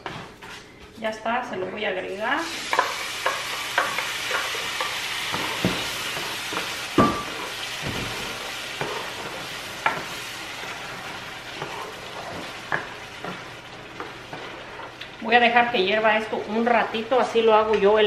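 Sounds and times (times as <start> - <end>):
food sizzling in a pan: 2.2 - 18.0
spoon knocking against pan: 6.5 - 8.1.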